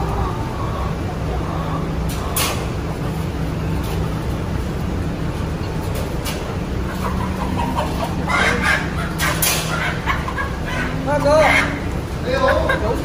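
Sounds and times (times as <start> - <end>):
chickens clucking: 0.0 - 13.0.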